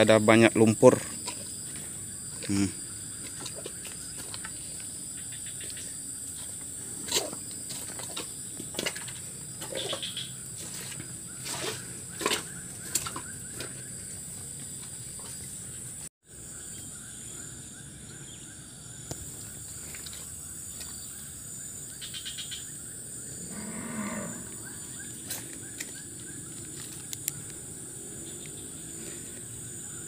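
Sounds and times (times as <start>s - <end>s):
high-pitched insect drone: 15.2s - 30.0s
cow mooing: 23.4s - 24.7s.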